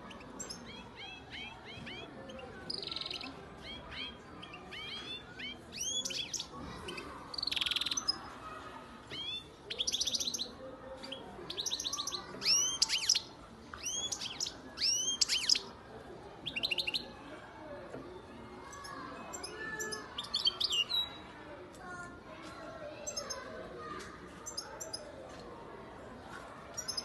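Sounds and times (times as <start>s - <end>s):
finch singing chirps and trills: 0.1s - 6.5s, 7.3s - 8.1s, 9.1s - 10.5s, 11.1s - 15.7s, 16.4s - 17.0s, 23.0s - 23.4s, 24.5s - 25.0s.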